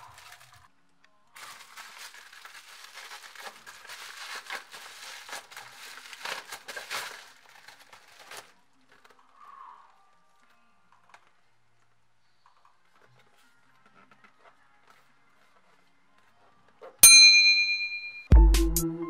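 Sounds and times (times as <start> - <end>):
plastic packaging crinkling: 0.0 - 0.7, 1.3 - 11.4.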